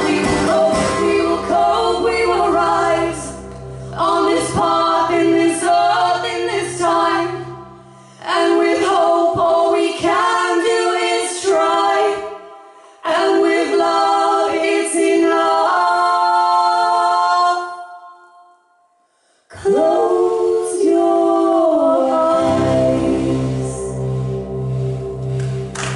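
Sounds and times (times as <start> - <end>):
women singing in harmony: 0.0 - 18.6, 19.5 - 24.0
low instrument notes: 20.9 - 25.9.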